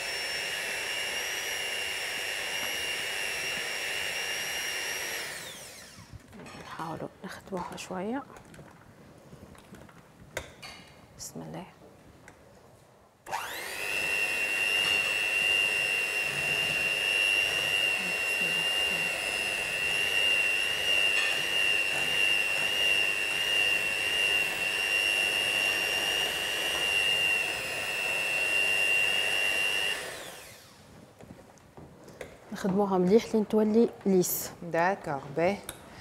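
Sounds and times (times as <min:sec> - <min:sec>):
electric mixer running: 0:00.0 - 0:06.2, 0:13.2 - 0:30.9.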